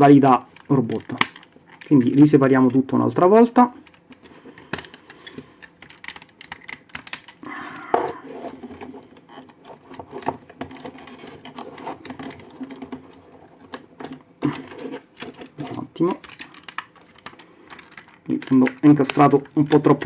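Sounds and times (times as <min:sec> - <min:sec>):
plastic toy parts clicking: 0:00.4 - 0:02.3, 0:03.8 - 0:07.4, 0:10.3 - 0:20.0.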